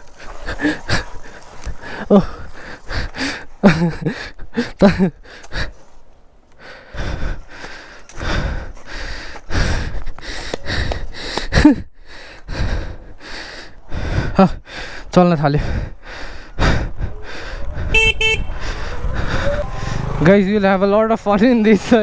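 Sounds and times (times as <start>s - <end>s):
person gasping and exclaiming: 1.8s - 5.7s, 18.6s - 20.1s
rough rushing noise: 18.4s - 20.5s.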